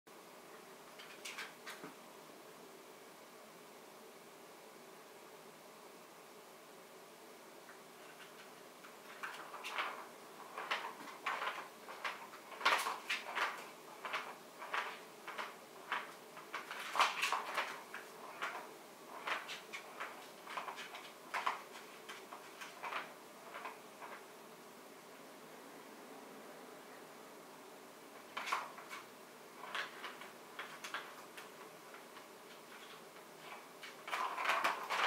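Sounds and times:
ball rattling in plastic toy: 0:08.1 - 0:24.2, 0:28.2 - 0:35.0.

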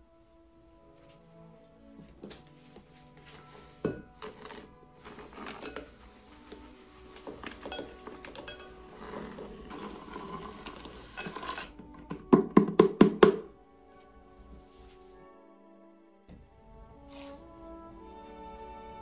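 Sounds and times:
soft background music: 0:00.0 - 0:19.0
sugar pouring into glass jug: 0:03.5 - 0:11.8
container knocking on jug: 0:12.0 - 0:13.5.

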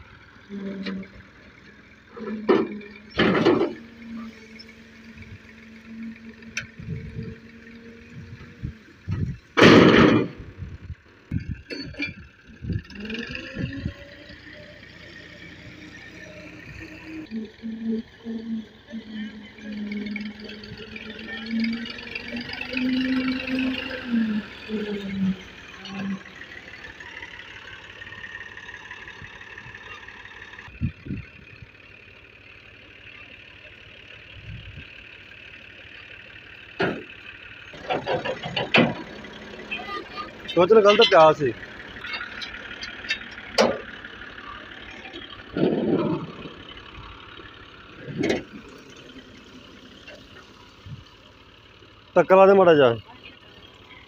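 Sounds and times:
diesel tractor engine running: 0:00.0 - 0:54.0
loud thumps: 0:09.1 - 0:10.6.

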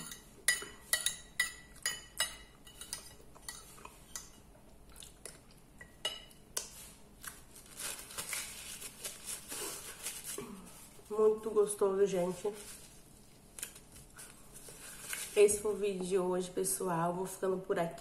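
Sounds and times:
paper napkin rustling: 0:06.8 - 0:16.0.

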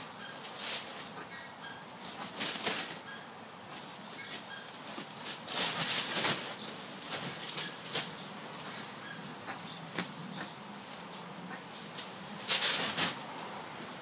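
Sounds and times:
ducklings peeping: 0:00.1 - 0:05.4, 0:06.1 - 0:12.0.

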